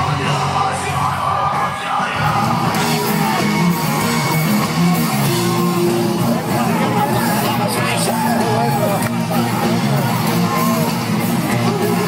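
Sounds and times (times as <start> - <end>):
guitars: 0.0 - 12.0
rock music: 0.0 - 12.0.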